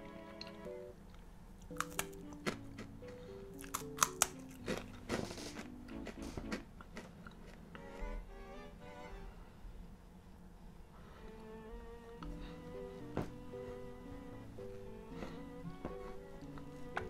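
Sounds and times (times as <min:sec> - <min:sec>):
background music with held notes: 0:00.0 - 0:06.8, 0:07.7 - 0:09.6, 0:11.0 - 0:17.0
crunchy snack being chewed: 0:01.1 - 0:08.2.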